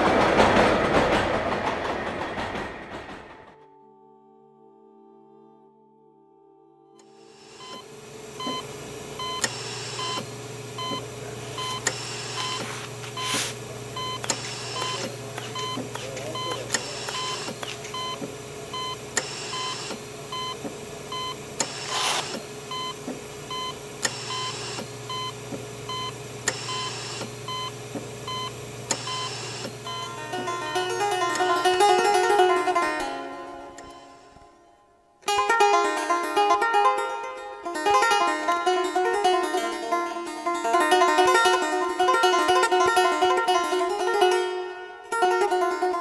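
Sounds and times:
brief hissing bursts: 11.9 - 13.7, 21.6 - 22.5
short electronic beeps: 12.4 - 18.2.

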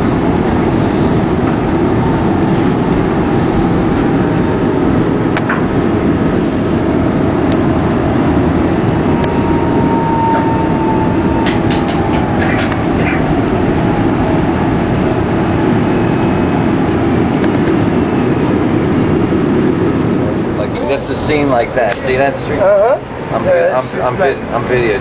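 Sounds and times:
train wheels rumbling on rail: 0.0 - 25.0
wheel squeal: 9.3 - 13.2.

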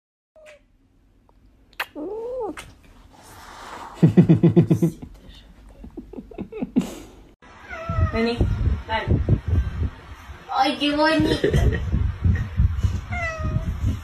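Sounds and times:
cat meowing: 7.6 - 8.2, 13.1 - 13.6.

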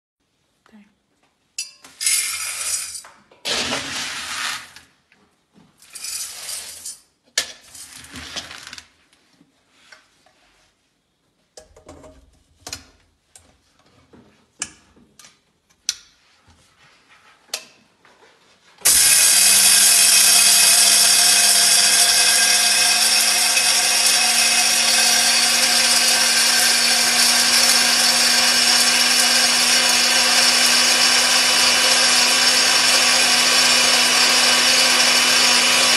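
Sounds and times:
kernels poured into metal chamber: 2.0 - 3.0, 5.9 - 7.0
grain mill motor grinding: 18.8 - 35.9.

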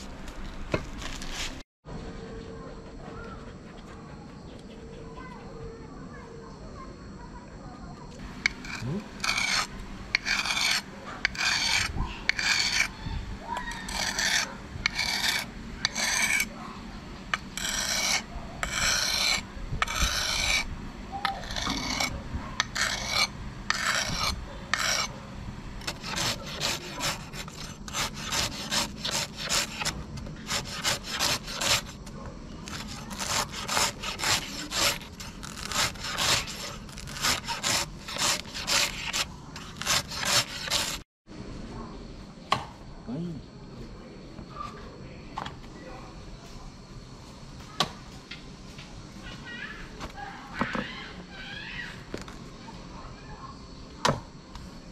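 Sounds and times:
knife rasping on whetstone: 8.4 - 13.0, 13.7 - 16.5, 17.3 - 25.2, 25.8 - 41.0.

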